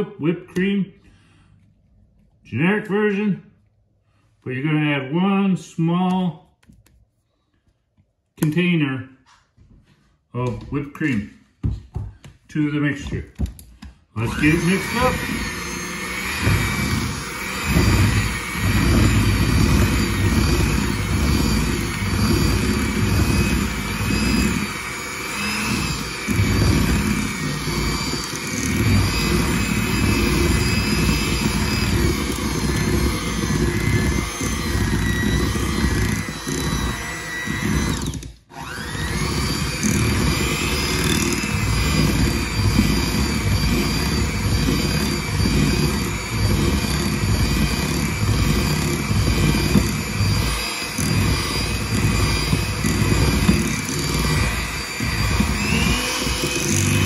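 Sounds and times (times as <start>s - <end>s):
electric hand mixer whining: 14.2s - 57.0s.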